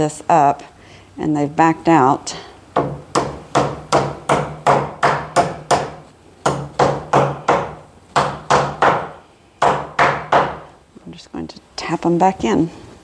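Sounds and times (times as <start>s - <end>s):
hammer tapping wooden wedges: 2.8s - 10.7s.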